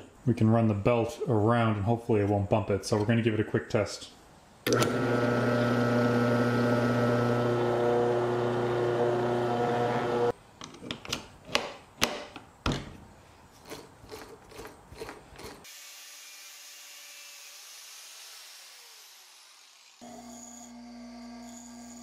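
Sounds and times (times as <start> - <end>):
electric motor running: 4.7 - 10.3, 19.6 - 22.0.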